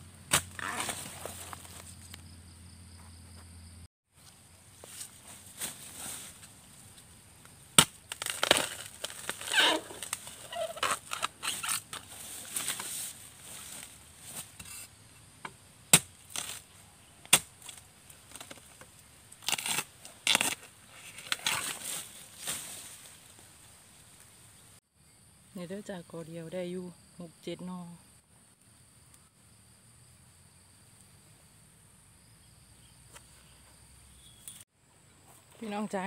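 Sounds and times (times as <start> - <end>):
metal blade chopping bamboo: 0.3 - 1.0, 7.8 - 12.0, 15.9 - 16.6, 17.3 - 18.6
rustling of leaves: 0.4 - 2.3, 4.1 - 15.0, 15.8 - 24.8.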